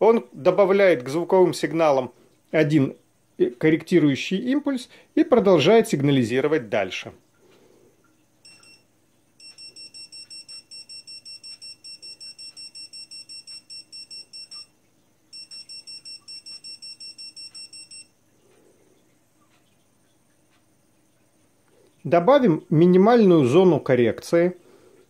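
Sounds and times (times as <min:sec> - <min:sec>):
rapid high electronic beeps: 0:08.4 - 0:08.8, 0:09.4 - 0:14.7, 0:15.3 - 0:18.1.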